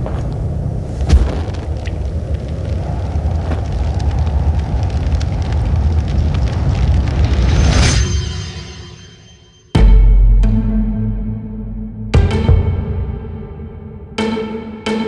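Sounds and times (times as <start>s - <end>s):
fire igniting whoosh: 0.0s - 8.6s
fire burning with crackles: 0.0s - 9.1s.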